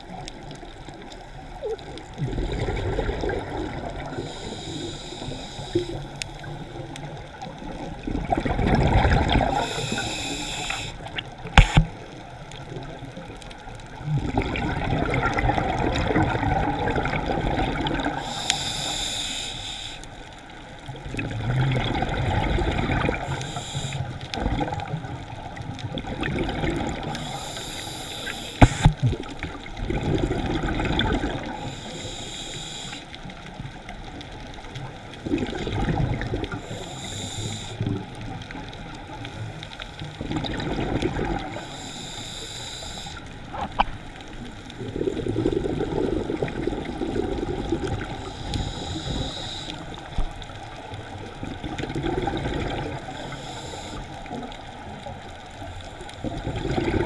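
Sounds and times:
exhaled bubbles rumbling: 0:00.0 - 0:04.4, 0:05.8 - 0:10.3, 0:11.0 - 0:18.5, 0:20.8 - 0:23.6, 0:24.2 - 0:27.5, 0:28.6 - 0:31.7, 0:33.5 - 0:37.0, 0:37.8 - 0:41.8, 0:43.3 - 0:53.2, 0:54.0 - 0:57.0
regulator hissing inhale: 0:04.0 - 0:06.4, 0:09.4 - 0:11.9, 0:18.1 - 0:20.4, 0:23.1 - 0:24.3, 0:27.0 - 0:29.0, 0:31.4 - 0:33.4, 0:36.5 - 0:38.1, 0:41.5 - 0:43.5, 0:47.8 - 0:50.2, 0:53.0 - 0:54.4.

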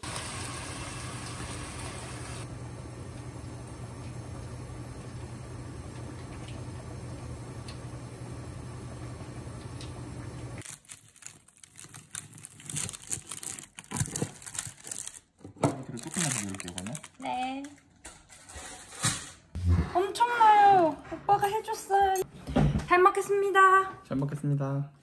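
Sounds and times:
gas stove hum and hiss: 0:00.0 - 0:10.6
paper crinkling: 0:10.6 - 0:17.4.

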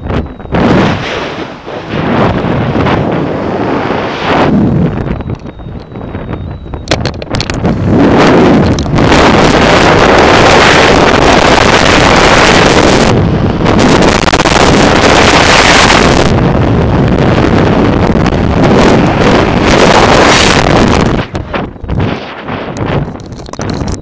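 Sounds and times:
wind roar on microphone: 0:00.0 - 0:24.0.

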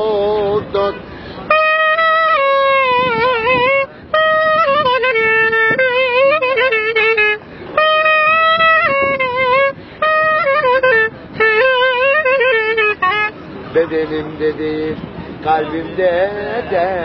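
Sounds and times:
clarinet melody: 0:01.5 - 0:14.2.

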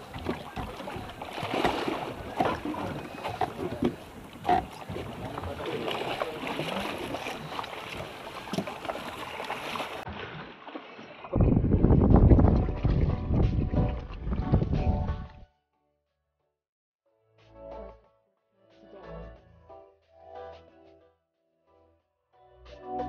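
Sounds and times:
fish thrashing in water: 0:00.0 - 0:11.3.

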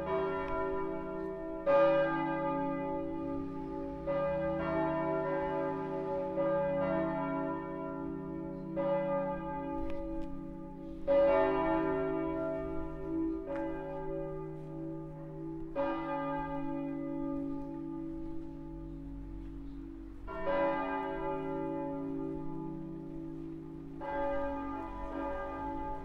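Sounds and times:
church bells pealing: 0:00.0 - 0:26.0.

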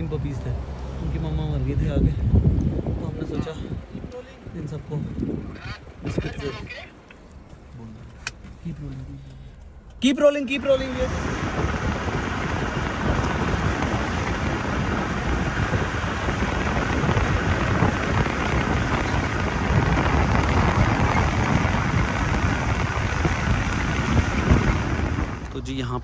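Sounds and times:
vehicle driving on wet road: 0:00.0 - 0:26.0
wind noise: 0:01.7 - 0:06.9, 0:10.6 - 0:25.5.

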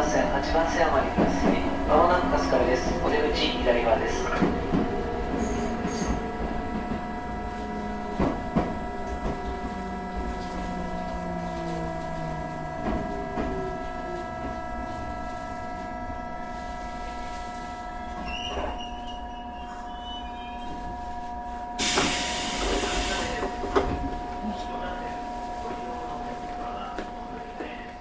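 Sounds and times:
high whine of train equipment: 0:00.0 - 0:28.0
train motor hum: 0:00.0 - 0:28.0
brief high squeal: 0:18.1 - 0:20.8.

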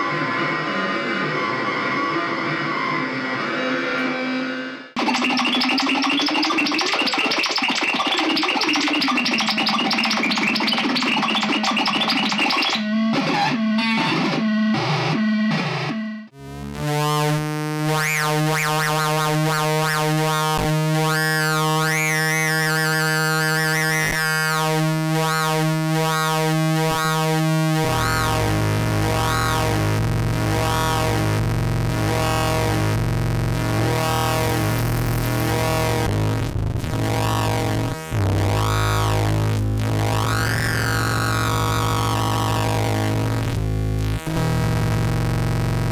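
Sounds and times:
warbling high tones: 0:05.0 - 0:14.4
buzzing synthesiser drone: 0:05.0 - 0:45.9
noisy synthesiser bursts: 0:05.0 - 0:45.9.

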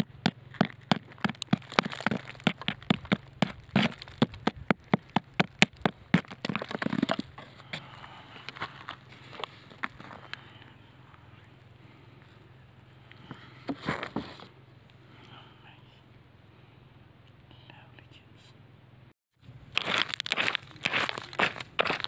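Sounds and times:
rock hammer tapping rock: 0:00.0 - 0:07.8
scraping and crumbling grit: 0:00.0 - 0:10.4, 0:19.8 - 0:22.0.

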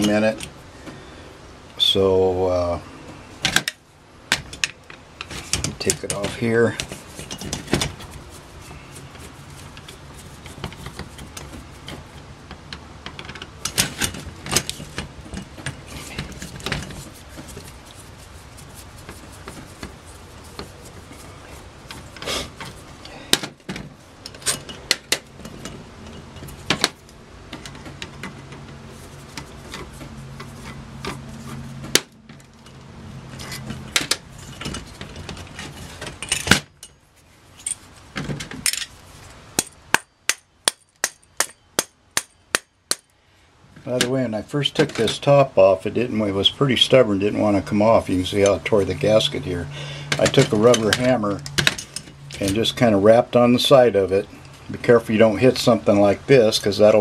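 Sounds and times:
low steady hum: 0:00.0 - 0:57.0
small metal parts clinking: 0:32.3 - 0:39.0.

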